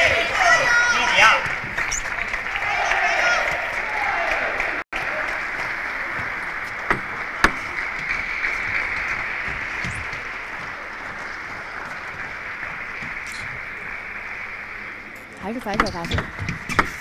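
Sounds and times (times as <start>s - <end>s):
crowd applause: 0.0s - 17.0s
crowd chatter: 0.0s - 17.0s.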